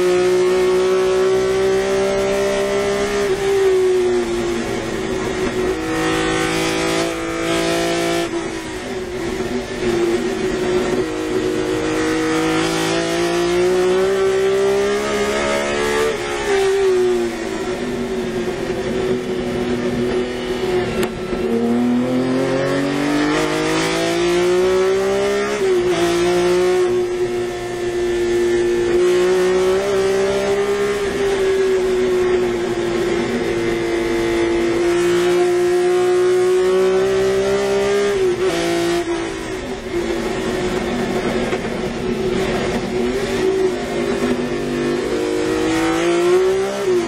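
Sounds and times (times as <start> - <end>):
race car engine accelerating: 0.0 - 47.0.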